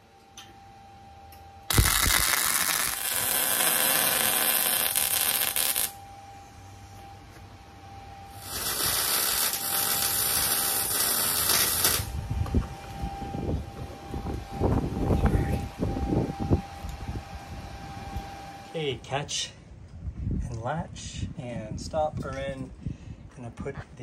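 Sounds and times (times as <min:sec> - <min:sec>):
welder arc crackling: 0:01.7 - 0:06.0, 0:08.3 - 0:12.2.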